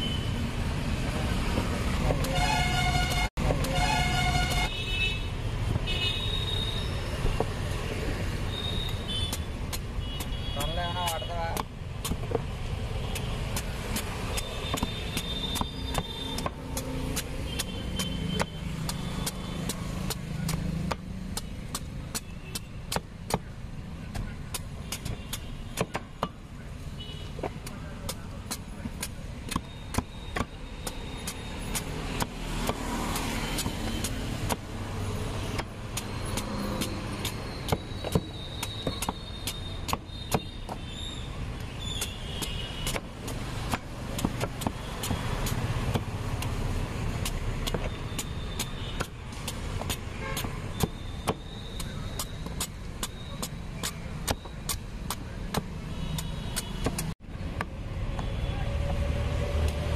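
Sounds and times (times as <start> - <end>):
road traffic rumble: 0.0 - 59.9
knife chopping fruit rind: 9.0 - 26.4, 27.4 - 40.9, 41.6 - 57.8.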